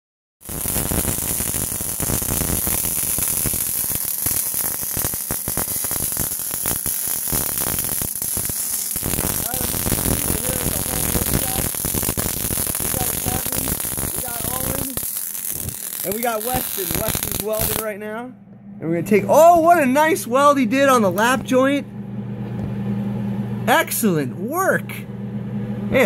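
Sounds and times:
welding arc crackling: 0.4 - 18.0.

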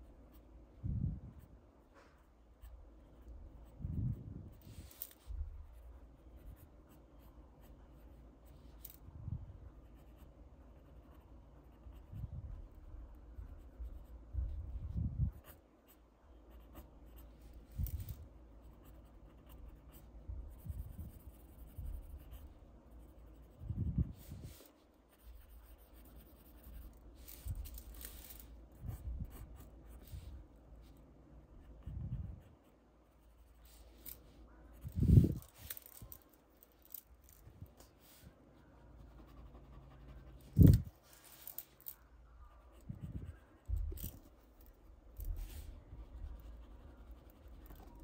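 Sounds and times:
pencil sketching on paper: 9.8 - 14.2, 37.9 - 40.9, 45.2 - 48.0.

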